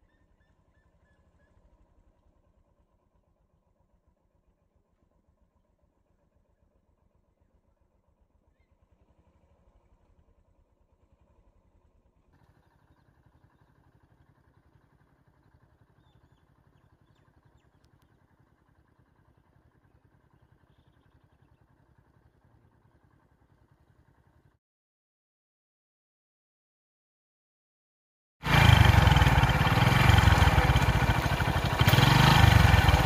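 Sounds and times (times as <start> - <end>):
vehicle engine running: 11.0 - 24.6, 28.4 - 33.0.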